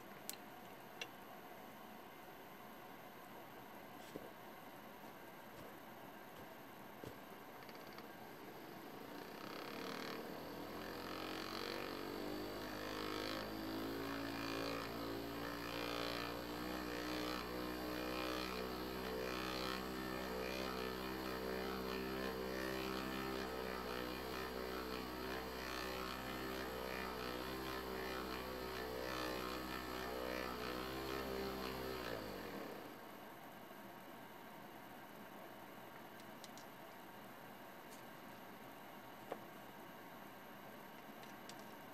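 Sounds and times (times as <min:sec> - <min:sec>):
electric motor humming and whining: 0:07.8 - 0:33.0.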